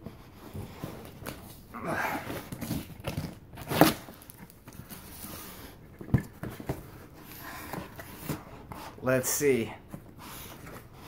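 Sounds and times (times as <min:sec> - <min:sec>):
cardboard cracking: 0:01.0 - 0:05.2.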